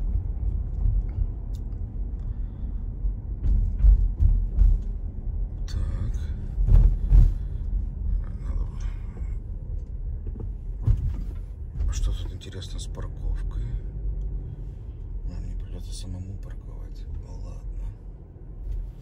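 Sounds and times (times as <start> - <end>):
car rolling rumble: 0.0 - 19.0
dull thumps: 10.3 - 12.0.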